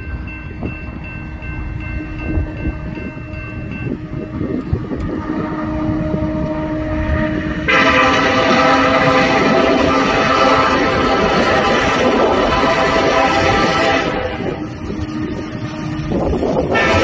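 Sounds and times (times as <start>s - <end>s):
diesel locomotive rumble: 0.0s - 17.0s
loud multi-note air horn: 5.3s - 14.6s, 16.7s - 17.0s.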